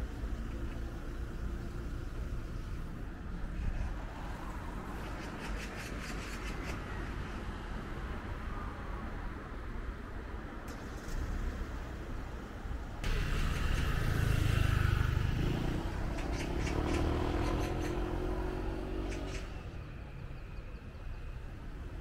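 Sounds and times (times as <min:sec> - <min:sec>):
car driving past: 0:13.0 - 0:19.6.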